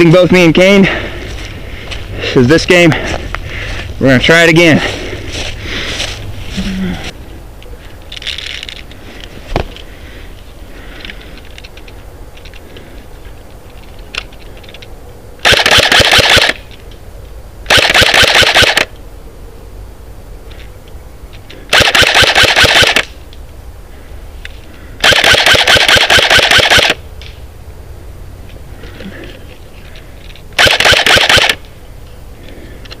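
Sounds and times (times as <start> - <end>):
airsoft rifle firing bursts: 15.4 - 16.6, 17.7 - 18.9, 21.7 - 23.1, 25.0 - 27.0, 30.6 - 31.6.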